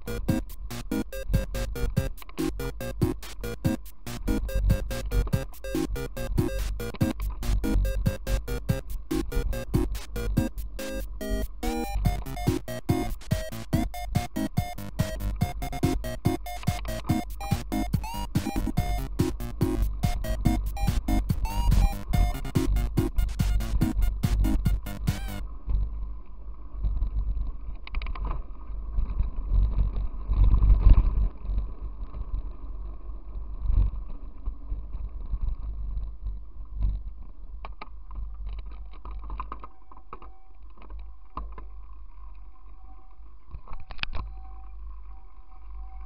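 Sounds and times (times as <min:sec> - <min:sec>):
wind rumble on microphone: 0:25.5 - 0:39.3.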